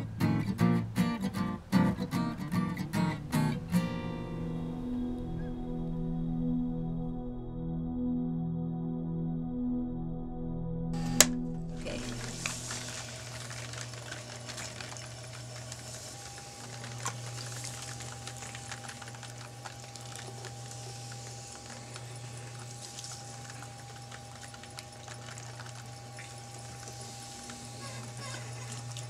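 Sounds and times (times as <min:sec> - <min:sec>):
faint high whine: 0:11.0 - 0:29.0
potter's wheel motor hum: 0:11.0 - 0:29.0
rubbing of wet clay: 0:11.7 - 0:29.0.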